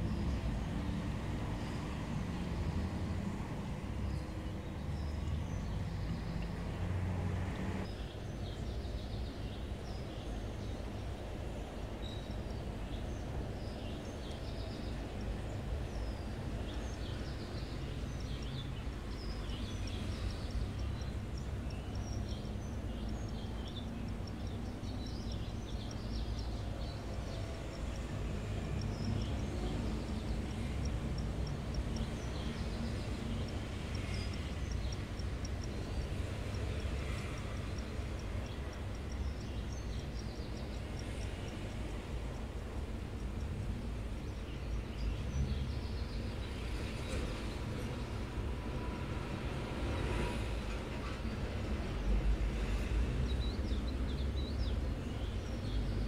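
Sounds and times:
small birds chirping: 7.8s - 49.0s, 49.7s - 56.0s
fast high ticking: 19.9s - 44.4s.

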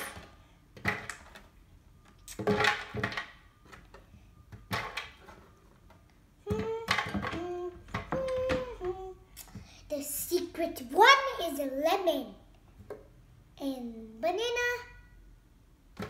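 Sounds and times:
child humming: 6.4s - 9.2s.

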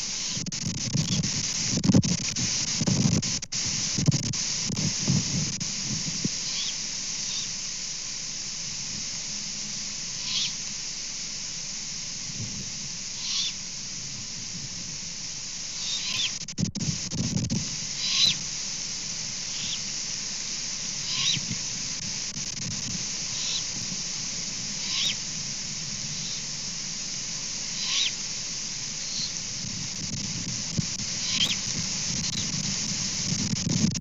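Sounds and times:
steady hiss: 0.0s - 34.0s
owl chicks screeching: 6.4s - 7.5s, 10.2s - 10.6s, 13.2s - 13.6s, 15.7s - 16.4s, 18.0s - 18.4s, 19.5s - 19.9s, 21.0s - 21.5s, 23.3s - 23.8s, 24.8s - 25.3s, 26.1s - 26.5s, 27.6s - 28.3s, 29.0s - 29.4s, 31.1s - 32.5s.

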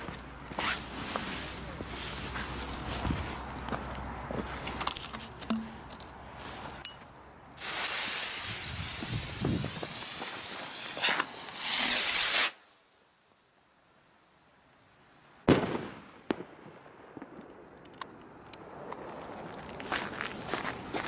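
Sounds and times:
firework fuse hissing: 7.6s - 12.9s.

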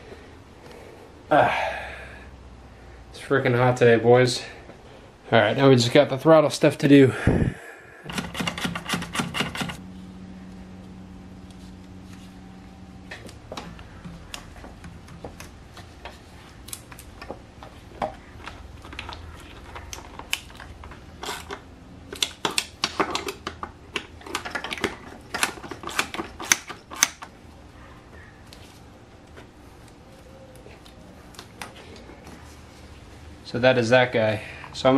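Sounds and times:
faint steady hum: 0.0s - 34.9s.

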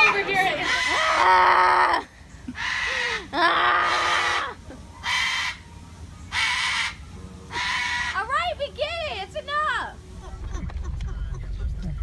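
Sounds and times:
cockatoo screeching: 0.4s - 5.6s, 6.3s - 8.3s.

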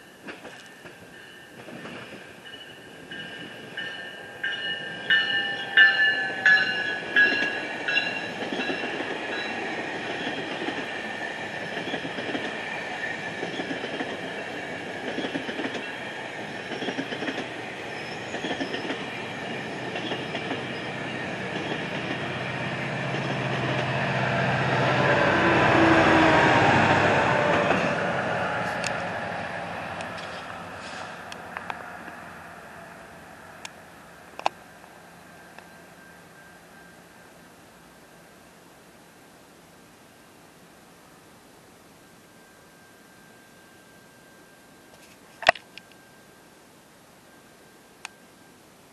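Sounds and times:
diesel locomotive engine: 0.2s - 38.5s
wheels clicking over rail joints: 13.3s - 23.9s.

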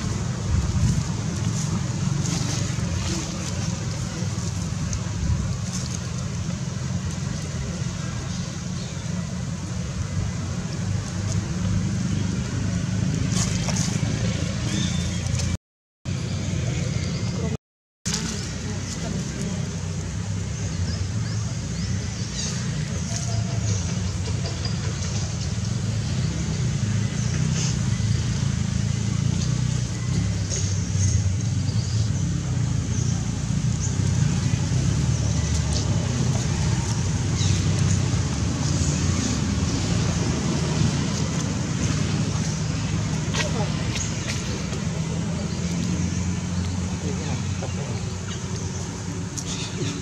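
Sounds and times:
steady low rumble: 0.0s - 14.6s.

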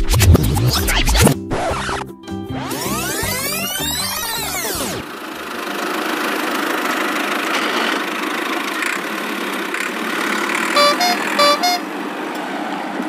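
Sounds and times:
toy tractor engine rumble: 2.8s - 11.9s
two-note horn toots: 10.7s - 11.9s.

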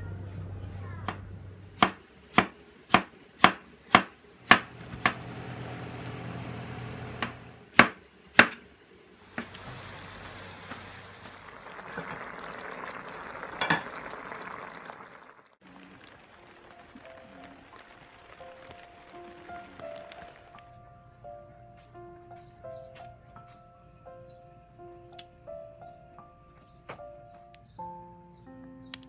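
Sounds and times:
food sizzling in a pan: 9.2s - 18.4s.

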